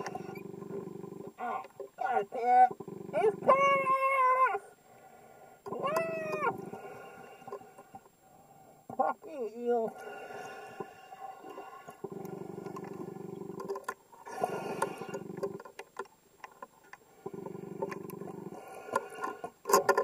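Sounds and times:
low steady underwater hum: 0:00.0 - 0:20.0
clicks and crackles: 0:11.5 - 0:20.0.

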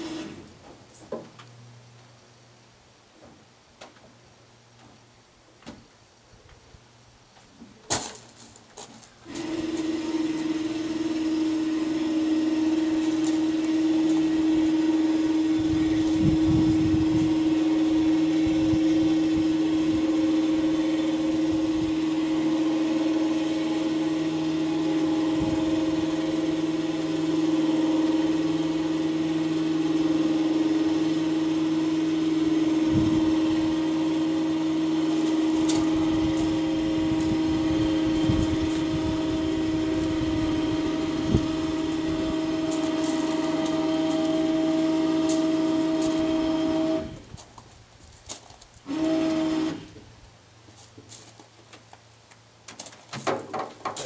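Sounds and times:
winch motor whining: 0:09.2 - 0:47.3, 0:48.8 - 0:50.0.

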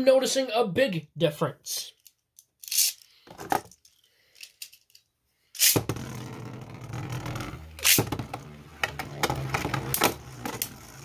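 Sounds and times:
spinning tops whirring: 0:05.6 - 0:11.0.

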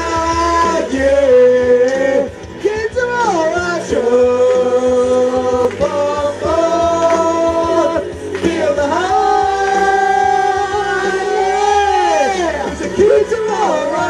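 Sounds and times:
amplified backing music: 0:00.0 - 0:14.0
person singing through microphone: 0:00.0 - 0:14.0.

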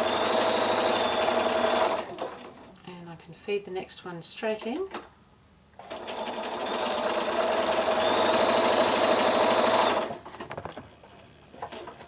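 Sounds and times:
sewing machine stitching: 0:00.0 - 0:02.6, 0:05.8 - 0:12.0.

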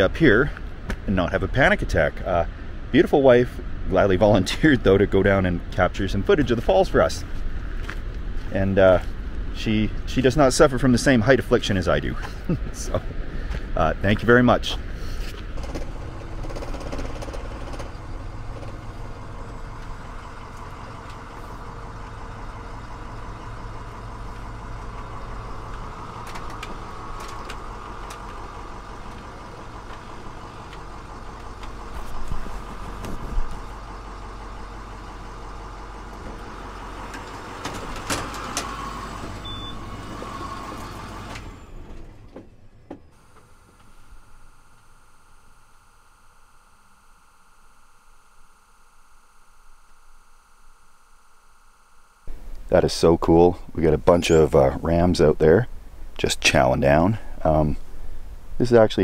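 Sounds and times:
bus engine and road noise: 0:00.0 - 0:44.6, 0:52.3 - 0:59.0
rattles and knocks: 0:15.5 - 0:22.2, 0:36.2 - 0:39.4.

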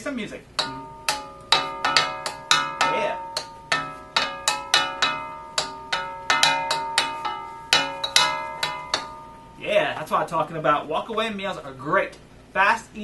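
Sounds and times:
utensils clanging on a wok: 0:00.6 - 0:09.7.

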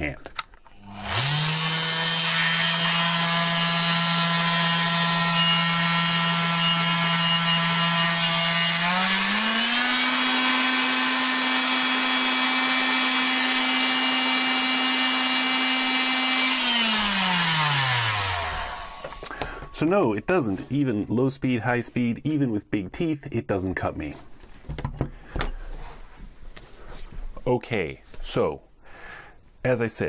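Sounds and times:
oscillating multi-tool whining: 0:00.8 - 0:19.3.

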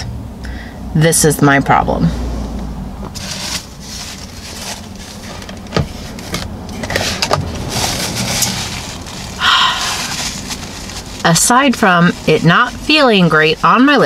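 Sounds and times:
rustling and handling noise: 0:03.0 - 0:14.0
paper napkin rubbed against lips: 0:07.0 - 0:11.4.

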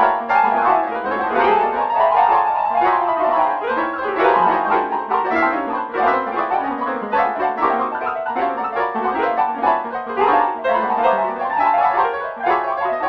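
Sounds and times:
synthesized piano melody: 0:00.0 - 0:13.0.

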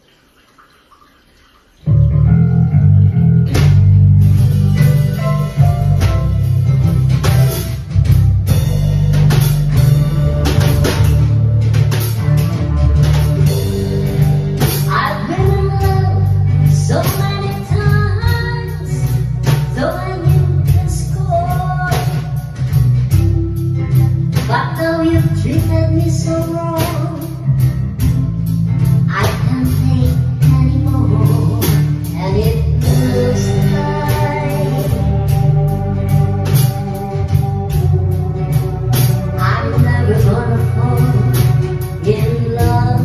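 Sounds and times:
guitar and drums music: 0:01.8 - 0:43.0
woman singing: 0:14.7 - 0:22.6, 0:24.3 - 0:27.7, 0:29.0 - 0:36.7, 0:39.3 - 0:43.0.

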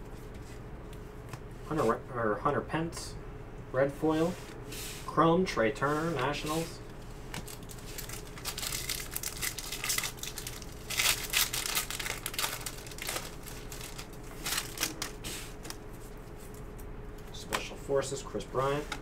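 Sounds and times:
foil wrapper crinkling and tearing: 0:07.2 - 0:15.8.

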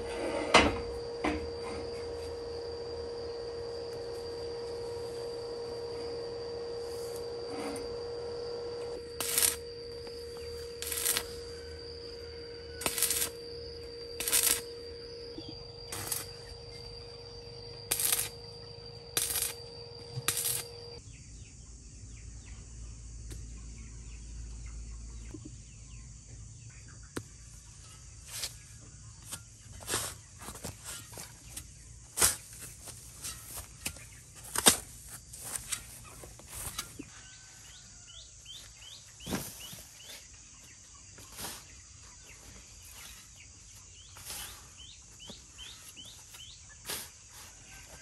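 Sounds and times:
arc welding whine: 0:00.0 - 0:21.0.

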